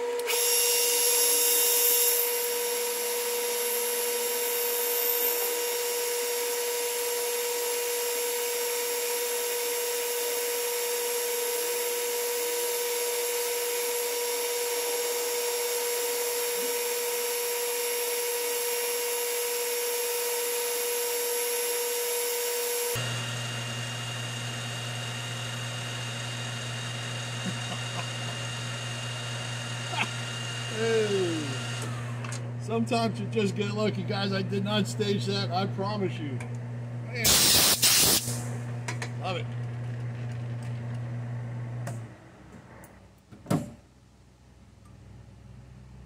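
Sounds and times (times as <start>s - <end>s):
metal lathe whining: 0.0s - 33.8s
hiss of cutting metal: 37.2s - 38.4s.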